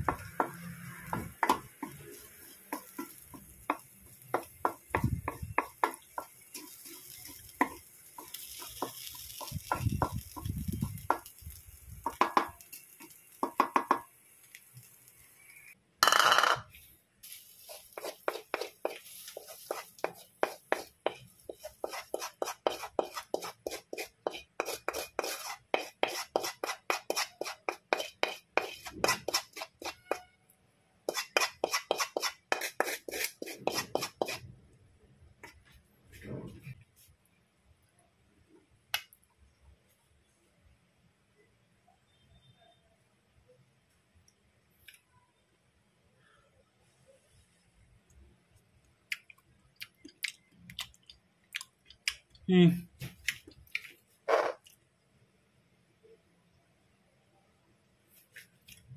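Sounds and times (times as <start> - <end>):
spatula scraping metal frying pan: 17.7 - 30.3, 31.1 - 34.4.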